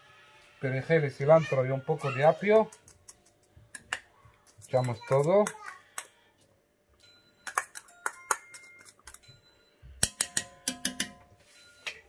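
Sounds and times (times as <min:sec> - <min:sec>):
metal utensil tapping cooking pot: 0:07.4 - 0:09.3, 0:10.0 - 0:11.3.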